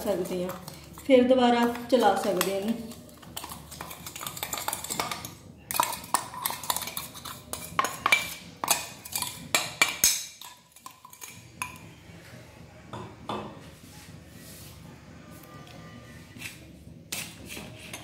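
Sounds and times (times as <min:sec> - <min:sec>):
spoon scraping inside metal jar: 0:00.0 - 0:11.7.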